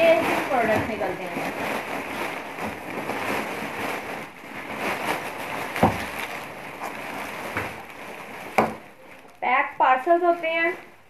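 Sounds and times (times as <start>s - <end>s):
plastic sack rustling and crinkling: 0.0s - 11.0s
parcels tumbling onto a table: 4.9s - 7.9s, 8.5s - 8.9s
thud: 5.8s - 6.3s, 8.6s - 8.8s.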